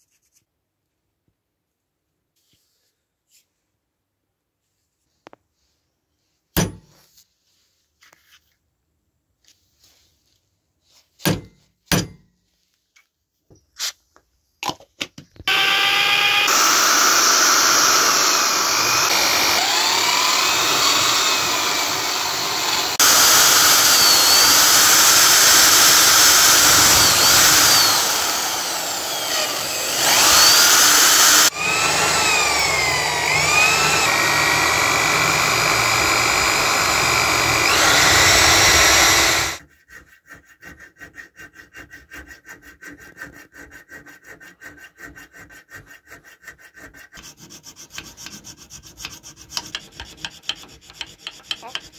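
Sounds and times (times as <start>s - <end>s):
electric drill boring steel: 15.5s - 39.6s.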